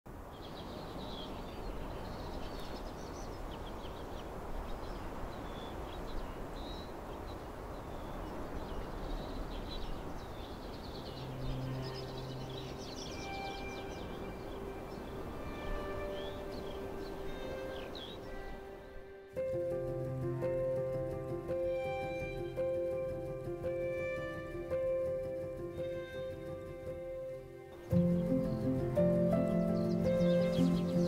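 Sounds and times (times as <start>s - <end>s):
small birds chirping: 0.2s - 31.0s
soft held music notes: 11.1s - 31.0s
wind rushing: 11.2s - 31.0s.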